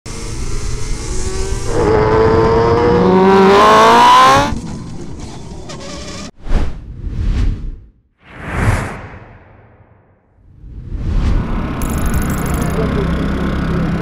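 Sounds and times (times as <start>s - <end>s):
short whoosh: 6.4s - 11.6s.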